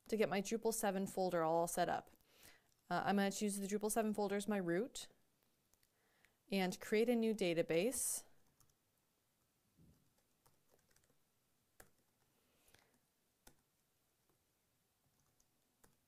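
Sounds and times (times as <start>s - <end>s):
keyboard and mouse clicks: 5.4s - 6.3s, 8.4s - 8.8s, 9.4s - 14.4s, 15.1s - 16.0s.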